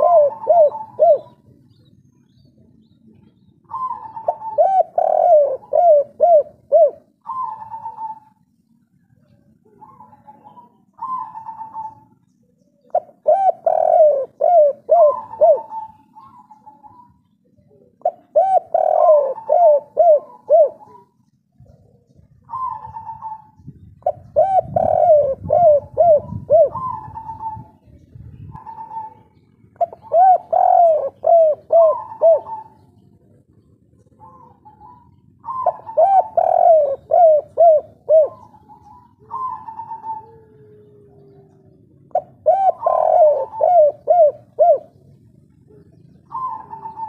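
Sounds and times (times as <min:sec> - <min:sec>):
dove cooing: 0:00.0 - 0:01.9, 0:02.5 - 0:47.0.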